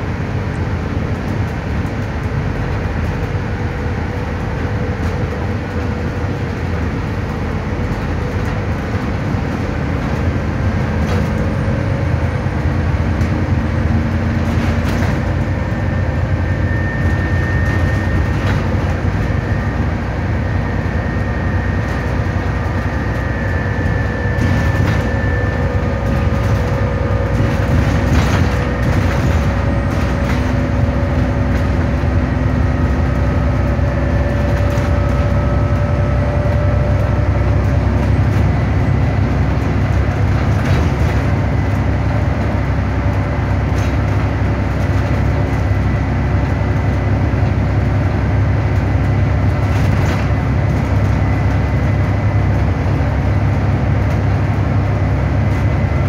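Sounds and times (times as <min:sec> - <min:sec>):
bus engine and road rumble: 0:00.0 - 0:56.0
bus fittings rattling: 0:24.3 - 0:31.8.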